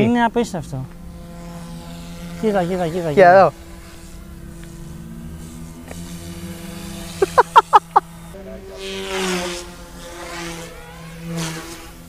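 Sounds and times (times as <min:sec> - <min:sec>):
rc helicopter rotor buzzing: 0:00.0 - 0:12.0.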